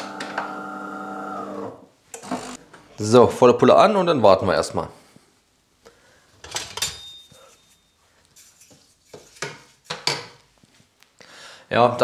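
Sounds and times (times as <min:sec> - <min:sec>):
metal cookware clattering: 0:06.4 - 0:07.6.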